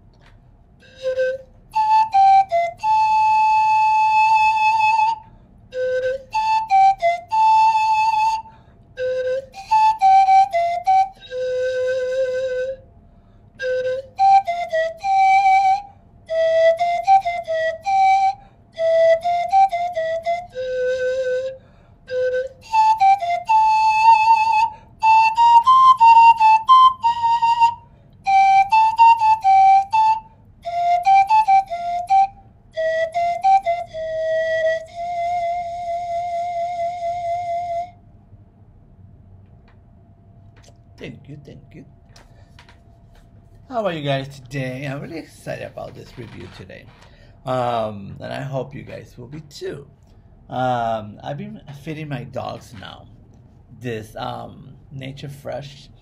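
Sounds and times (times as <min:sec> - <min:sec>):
pan flute melody: 0:00.8 - 0:13.0, 0:13.6 - 0:38.1.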